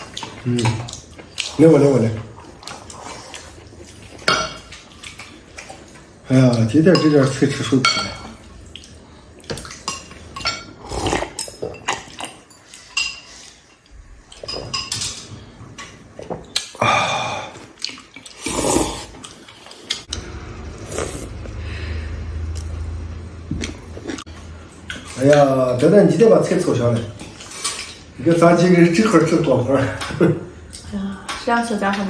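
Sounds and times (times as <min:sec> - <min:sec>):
eating noises: 0:00.0 - 0:06.7, 0:08.4 - 0:14.7, 0:15.8 - 0:20.2.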